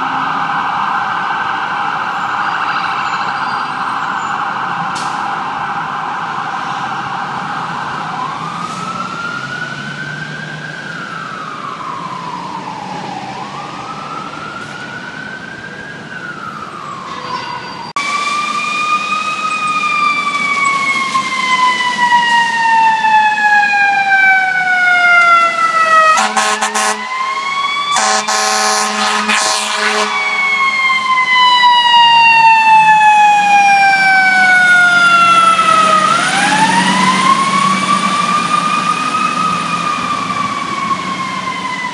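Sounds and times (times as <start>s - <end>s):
distant siren: 0.0s - 41.9s
fire truck mechanical siren: 0.0s - 41.9s
air horn blasts: 26.1s - 30.8s.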